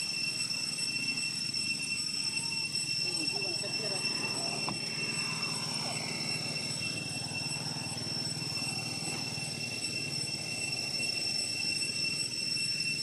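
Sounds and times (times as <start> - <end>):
high-pitched whine: 0.0 - 13.0.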